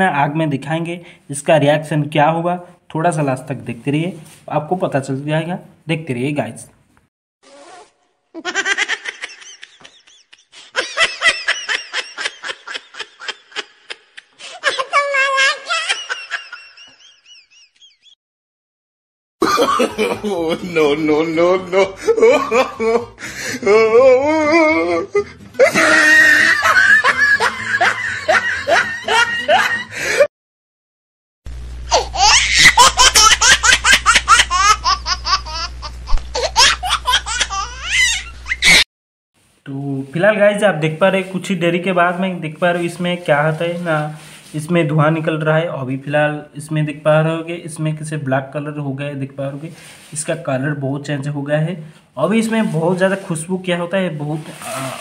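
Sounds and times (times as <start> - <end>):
high-pitched giggling: 8.4 - 17.0, 31.9 - 38.8
high-pitched laughter: 8.4 - 18.1, 21.6 - 23.1, 23.7 - 29.9, 31.9 - 38.8
low hum: 31.5 - 32.1.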